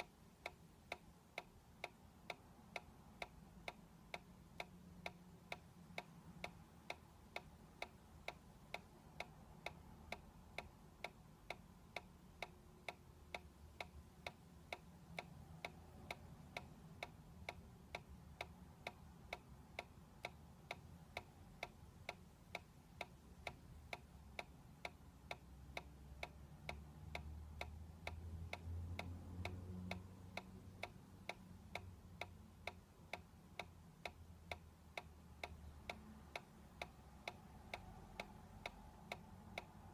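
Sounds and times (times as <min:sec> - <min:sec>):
steady mechanical ticking: 0:00.0 - 0:39.9.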